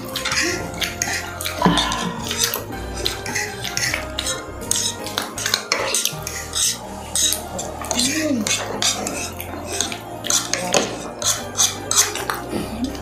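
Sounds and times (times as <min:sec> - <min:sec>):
clicks of people eating: 0:00.0 - 0:13.0
cutlery clinking on plates: 0:00.0 - 0:13.0.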